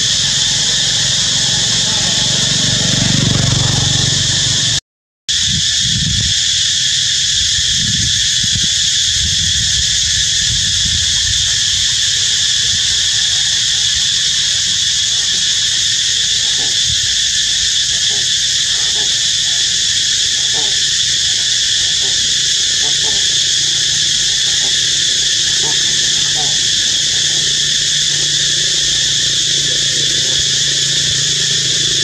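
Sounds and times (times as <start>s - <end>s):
insect chorus: 0.0s - 32.0s.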